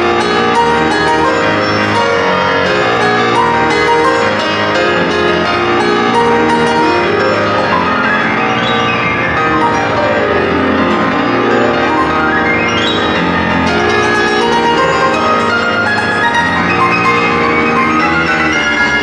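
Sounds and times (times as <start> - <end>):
fast solo piano playing: 0.0 - 19.0.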